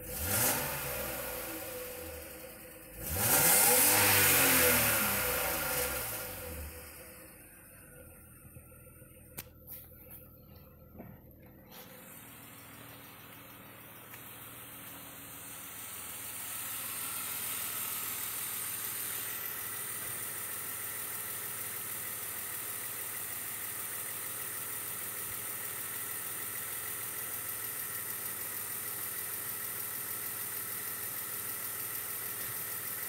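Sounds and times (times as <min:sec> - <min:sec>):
car engine idling: 0:00.0 - 0:33.0.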